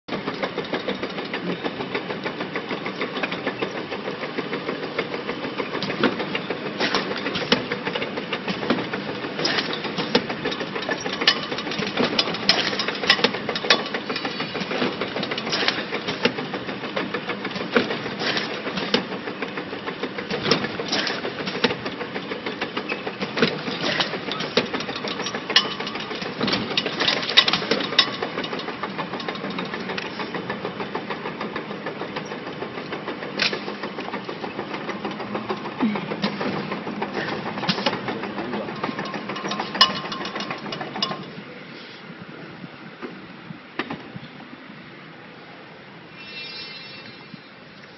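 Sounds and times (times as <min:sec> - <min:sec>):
air compressor rattling: 0:00.1 - 0:41.4
jugs clacking and knocking: 0:04.7 - 0:19.2, 0:20.2 - 0:41.4.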